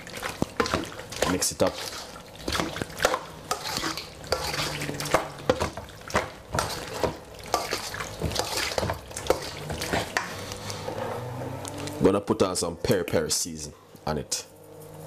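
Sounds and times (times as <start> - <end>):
wet scraping and squelching: 0.0 - 12.1.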